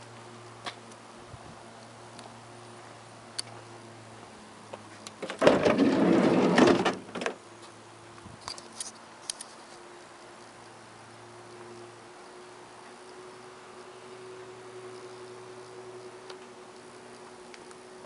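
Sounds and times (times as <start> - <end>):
sliding van door rolling scrape: 5.2 - 7.4.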